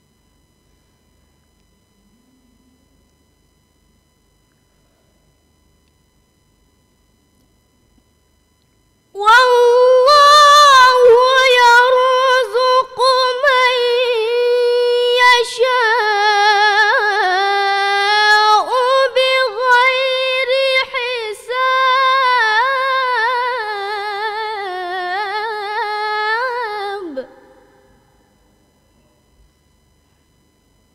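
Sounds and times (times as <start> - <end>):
girl reciting melodically: 9.2 - 27.3.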